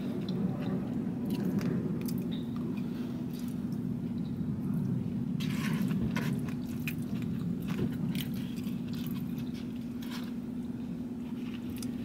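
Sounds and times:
low car interior hum: 0.0s - 12.0s
person chewing food: 5.4s - 10.4s, 11.3s - 12.0s.

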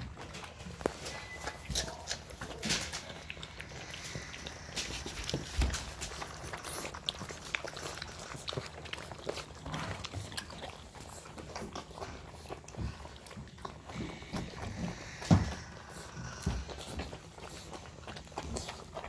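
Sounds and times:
puppies chewing kibble: 0.0s - 19.0s.

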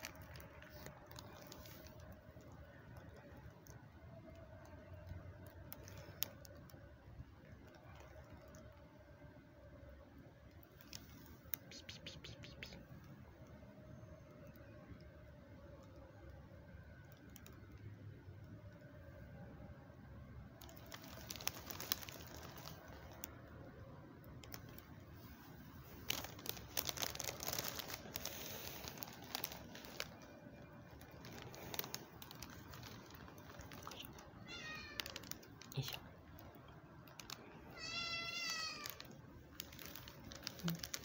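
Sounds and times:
rustling and clicking: 0.0s - 8.9s, 20.6s - 23.5s, 24.2s - 37.5s, 38.3s - 41.0s
cat meowing: 34.1s - 35.5s, 37.7s - 39.1s.

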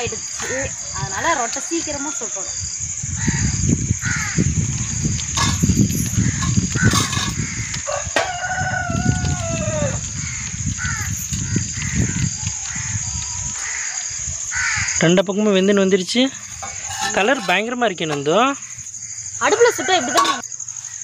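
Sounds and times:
high insect drone: 0.0s - 21.0s
crows cawing: 3.2s - 15.0s
rooster crowing: 6.2s - 11.1s, 19.4s - 20.4s.

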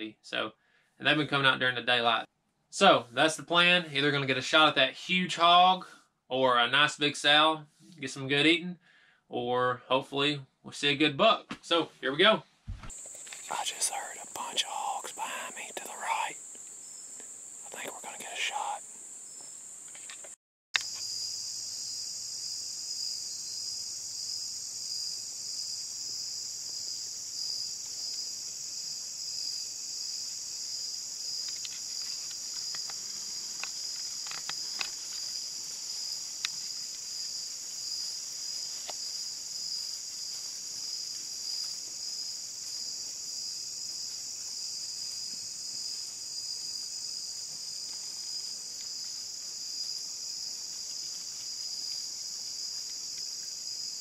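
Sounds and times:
insects chirring: 12.9s - 54.0s
faint clicks and snaps: 31.4s - 35.3s.

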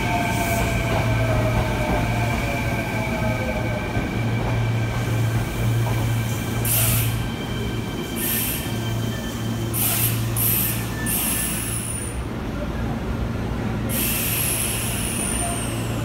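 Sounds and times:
air brake hisses: 13.9s - 16.0s.

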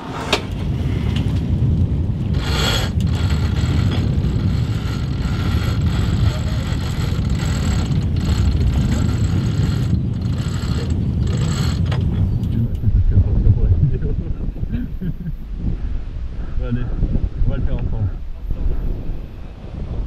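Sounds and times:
wind rushing: 0.0s - 20.0s
deck gear clicks and rattles: 2.3s - 12.8s.

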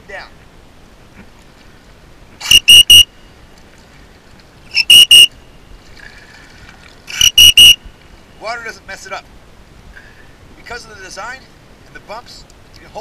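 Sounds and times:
high-pitched whistle blasts: 2.4s - 3.1s, 4.7s - 5.3s, 7.1s - 7.8s.

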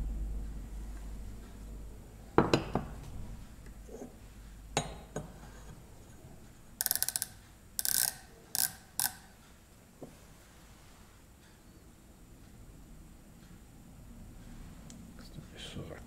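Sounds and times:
micrometer ratchet clicks: 6.8s - 9.4s.

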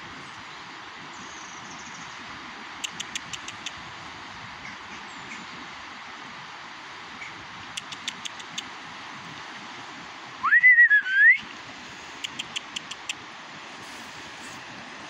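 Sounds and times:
faint high ticks: 2.8s - 3.8s, 7.8s - 8.7s, 12.2s - 13.2s
short gliding whistle: 10.4s - 11.4s.

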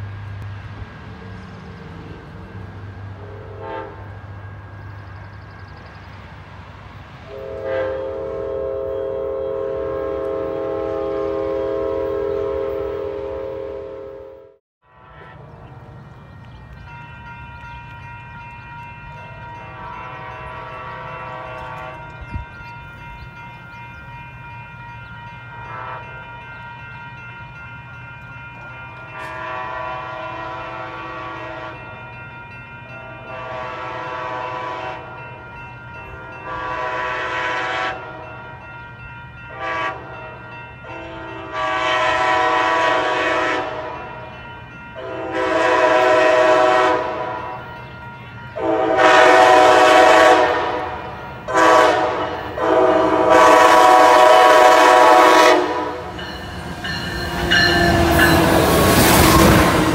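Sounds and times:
train wheels on rails: 0.0s - 13.6s, 15.0s - 59.9s
train horn blasts: 3.1s - 4.6s, 7.2s - 15.5s, 19.4s - 22.5s, 25.6s - 26.6s, 29.0s - 32.1s, 32.9s - 35.4s, 36.0s - 38.7s, 39.5s - 47.8s, 48.6s - 59.9s.

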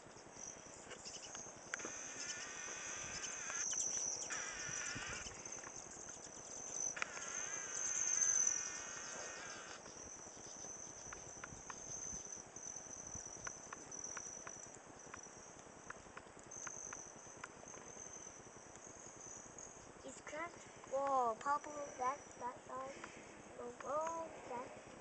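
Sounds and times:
insects chirring: 0.0s - 25.0s
faint sharp clicks: 22.8s - 24.3s.

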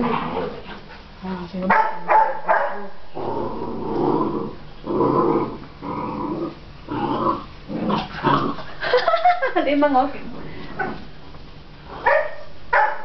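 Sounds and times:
puppies growling: 0.0s - 1.4s, 2.9s - 9.0s.

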